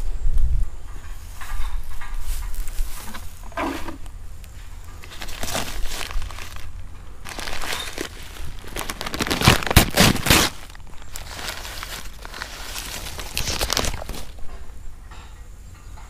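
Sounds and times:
plastic bag crinkling: 5.0s - 14.5s.

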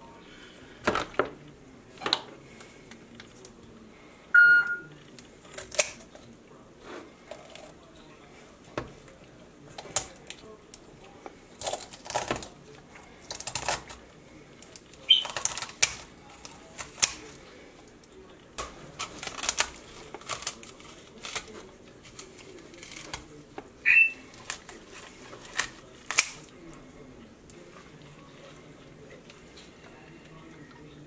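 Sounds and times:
bone cracks: 5.5s - 6.1s, 25.5s - 26.5s.

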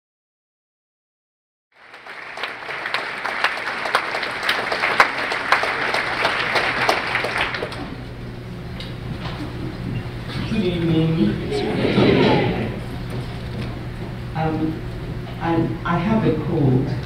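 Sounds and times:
audience applauding: 1.8s - 8.1s.

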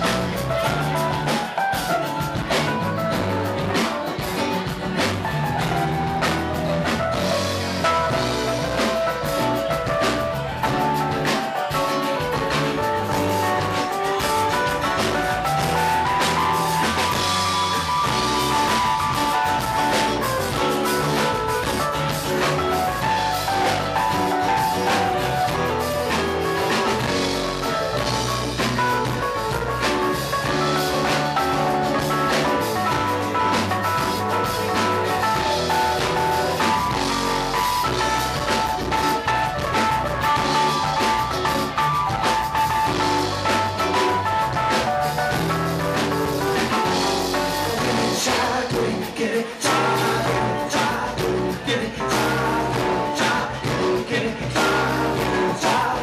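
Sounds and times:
drum kit: 0.0s - 56.0s
electric bass: 0.0s - 56.0s
electric guitar: 0.0s - 56.0s
held melody line: 0.0s - 56.0s
person singing: 47.1s - 56.0s.

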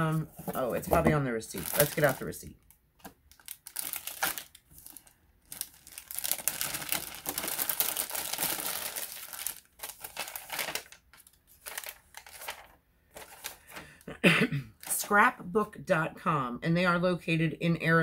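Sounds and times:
paper and packaging crinkling: 0.2s - 14.0s.

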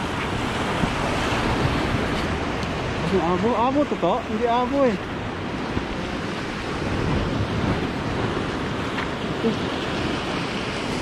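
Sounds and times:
surf breaking over rocks: 0.0s - 11.0s
wind on microphone: 0.0s - 11.0s.

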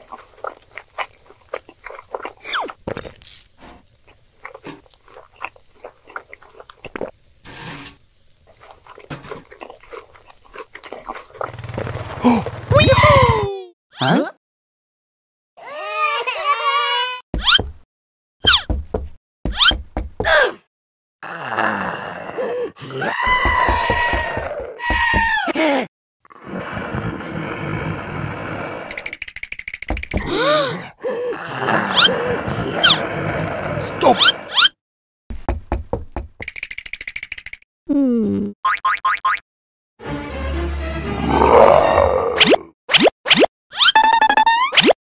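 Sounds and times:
whining cartoon voice: 12.7s - 14.3s, 33.7s - 34.7s.

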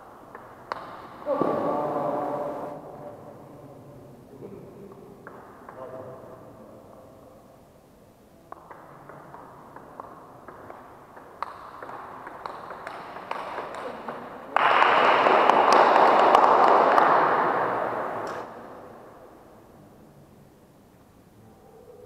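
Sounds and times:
table tennis ball hits: 0.3s - 1.7s, 5.2s - 5.8s, 8.5s - 18.6s
spectators clapping: 12.4s - 18.6s.

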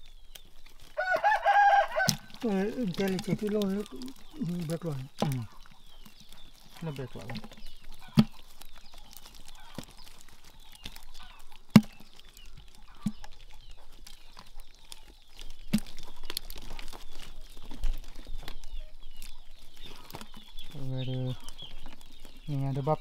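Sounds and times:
chickens clucking: 0.0s - 23.0s
fish knocking in plastic bucket: 7.1s - 8.6s, 11.7s - 12.1s.

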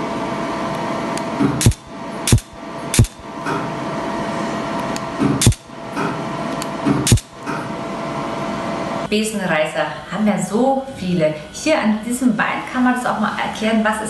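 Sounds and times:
steady background hum: 0.0s - 14.0s
laser pulse clicks: 1.6s - 3.2s, 5.4s - 5.7s, 7.1s - 7.3s.

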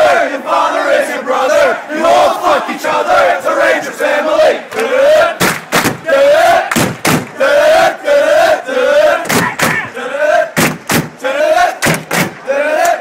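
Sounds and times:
crowd chanting: 0.0s - 13.0s
loud sharp hits: 6.7s - 7.4s.

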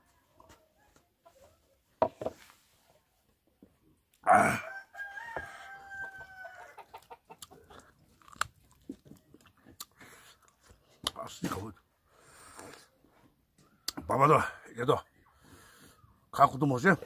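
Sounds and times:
rooster crowing: 4.4s - 7.0s
chewing and crunching food: 6.9s - 11.6s.

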